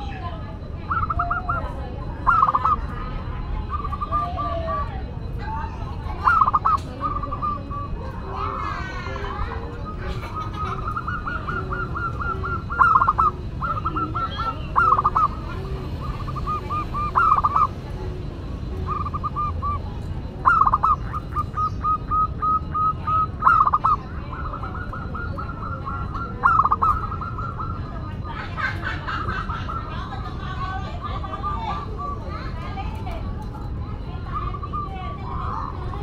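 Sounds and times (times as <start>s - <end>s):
dove cooing: 0.0s - 36.0s.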